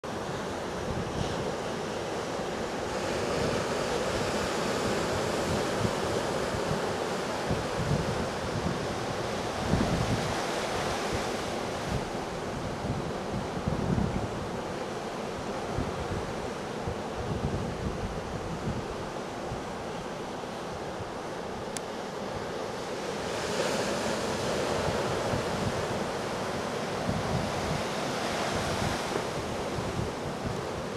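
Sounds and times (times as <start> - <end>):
ocean surf breaking: 0.1 - 30.9
wind buffeting microphone: 0.6 - 21.7, 22.4 - 30.9
surf breaking on shore: 22.2 - 30.9.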